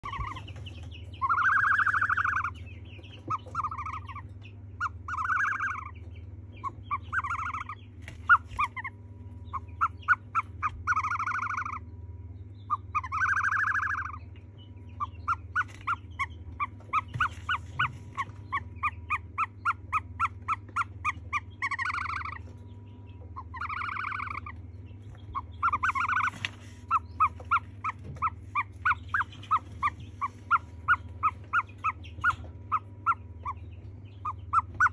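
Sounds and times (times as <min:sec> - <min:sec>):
ostrich chick peeping: 0:00.0 - 0:34.9
ostrich chick whistling calls: 0:00.0 - 0:34.9
steady low hum: 0:00.0 - 0:34.9.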